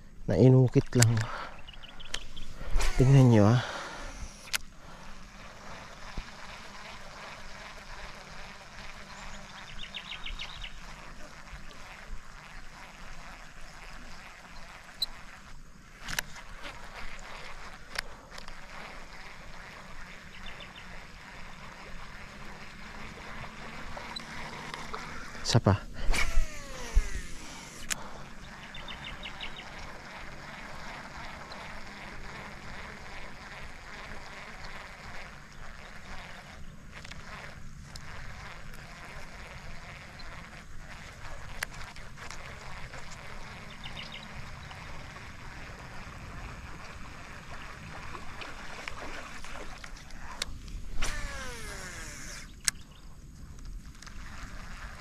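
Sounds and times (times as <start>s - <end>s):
background hum: 0.0s - 55.0s
reel spool whining: 1.6s - 11.2s, 11.8s - 52.8s
fishing reel cranking: 2.9s - 4.7s, 22.0s - 28.2s, 50.0s - 52.8s.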